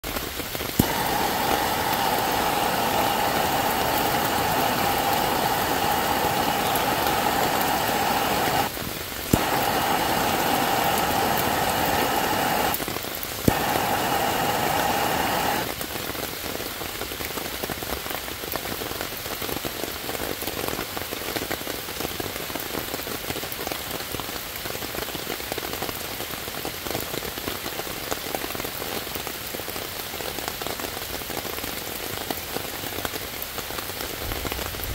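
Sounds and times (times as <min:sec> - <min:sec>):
rain pattering on leaves: 0:00.0 - 0:34.9
blowtorch ignition click: 0:00.7 - 0:15.8
gas blowtorch hissing: 0:00.7 - 0:15.8.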